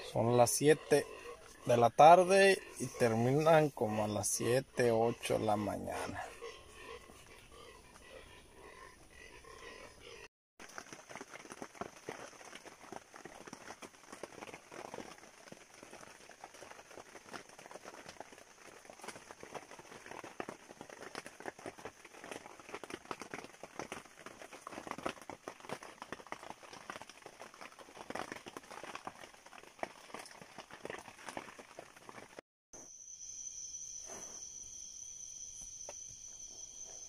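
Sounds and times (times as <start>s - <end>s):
high-pitched insect hum: 32.8s - 37.0s.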